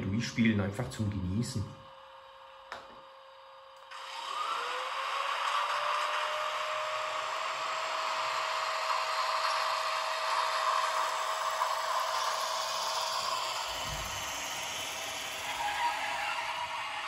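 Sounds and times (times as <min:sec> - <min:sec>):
model locomotive electric whine: 0:01.5 - 0:17.0
motor and rolling wheels rushing: 0:03.9 - 0:17.0.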